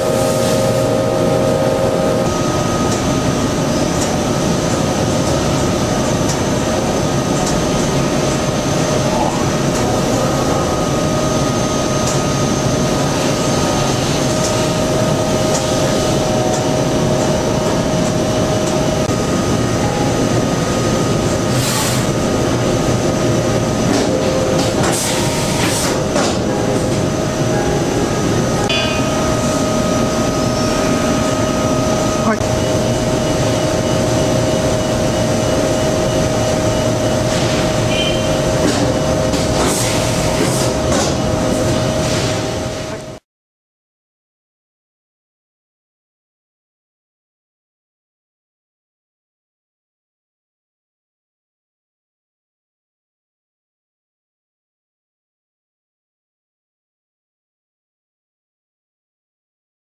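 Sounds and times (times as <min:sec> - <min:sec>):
machinery drone with whine: 0:00.0 - 0:43.2.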